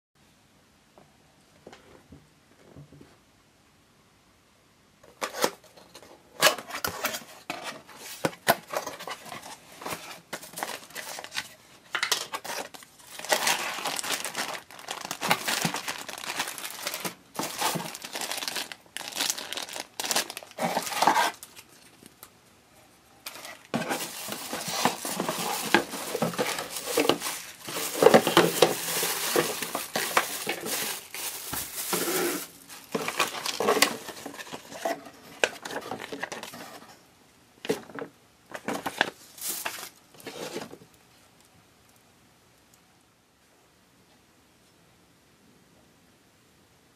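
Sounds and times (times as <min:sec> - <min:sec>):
plastic bags and bubble wrap crinkling: 0:06.6 - 0:22.3, 0:23.2 - 0:36.9, 0:37.7 - 0:41.0
cardboard box being handled: 0:12.6 - 0:21.4, 0:23.3 - 0:35.0.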